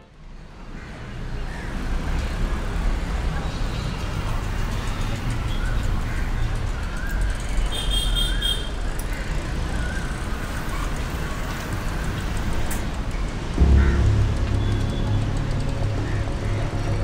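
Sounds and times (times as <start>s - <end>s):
road traffic rumble: 0.1s - 17.0s
brief high-pitched tone: 13.6s - 16.4s.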